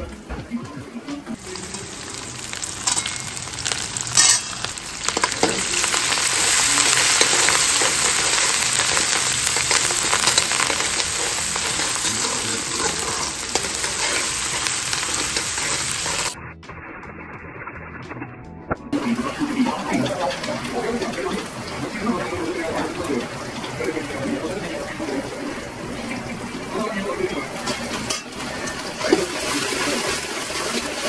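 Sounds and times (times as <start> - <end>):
onions sizzling in hot oil: 1.4 - 16.4, 19.0 - 31.0
spatula scraping pan: 1.5 - 16.4.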